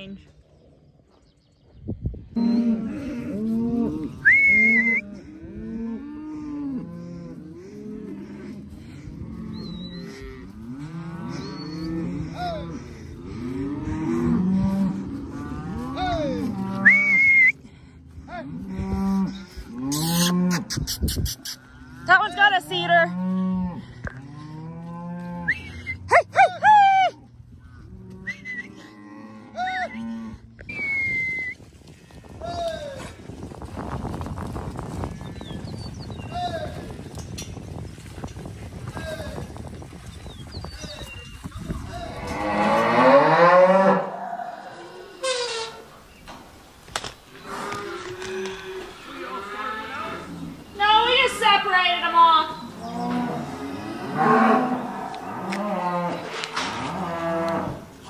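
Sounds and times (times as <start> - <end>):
cows mooing: 2.4 - 17.6, 18.4 - 20.8, 21.4 - 26.4, 41.8 - 45.9, 47.3 - 58.0
calves bawling: 18.3 - 23.4.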